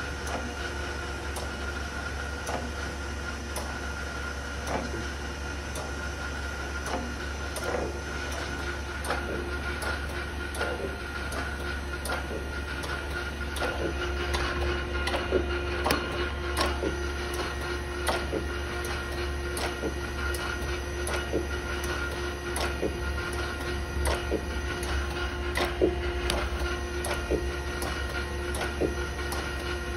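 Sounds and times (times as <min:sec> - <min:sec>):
grinder hum and whine: 0:00.0 - 0:29.9.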